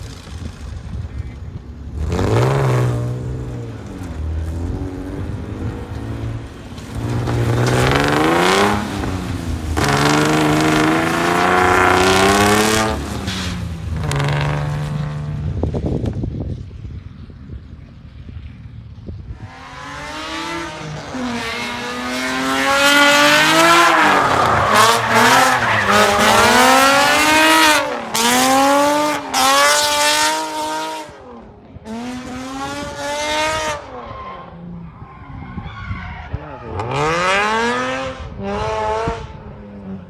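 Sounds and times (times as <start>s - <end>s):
car engine revving hard: 7.0s - 13.2s, 19.5s - 31.1s, 36.8s - 39.3s
tyres squealing: 23.7s - 29.6s.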